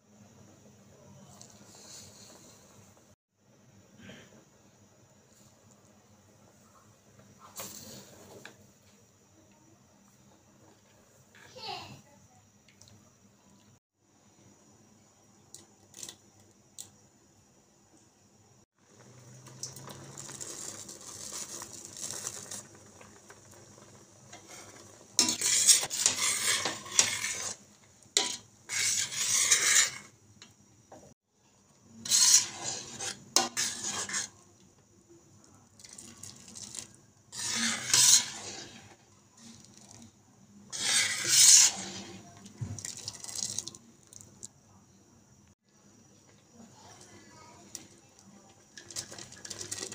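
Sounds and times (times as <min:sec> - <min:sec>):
metal ladle scraping steel pot: 0:24.3 - 0:27.6, 0:28.2 - 0:30.1, 0:32.0 - 0:34.4, 0:37.3 - 0:39.0, 0:40.7 - 0:42.3.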